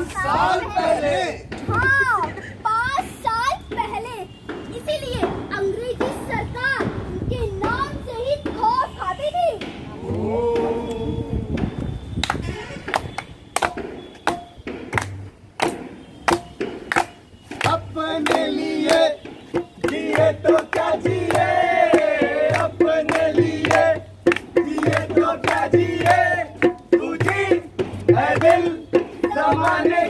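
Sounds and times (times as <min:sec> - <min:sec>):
group singing together: 0:00.0 - 0:01.5, 0:17.7 - 0:30.0
group clapping a steady beat: 0:11.6 - 0:30.0.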